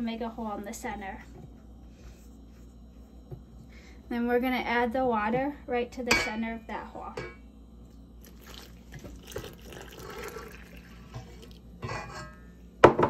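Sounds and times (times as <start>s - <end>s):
water trickling into bowl: 8.2s - 11.6s.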